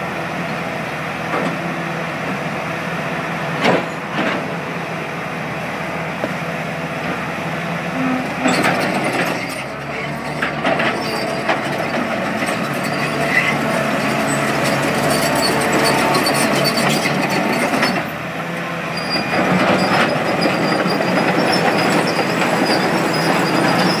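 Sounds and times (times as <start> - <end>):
diesel engine working hard: 0.0 - 24.0
steel tracks clanking: 8.0 - 24.0
high squeaks: 12.5 - 18.1, 19.0 - 24.0.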